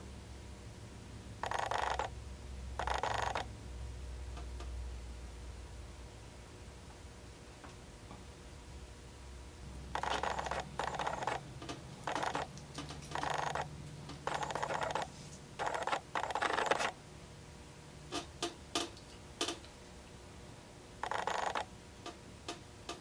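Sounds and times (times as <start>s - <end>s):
faint low hum: 0.0s - 23.0s.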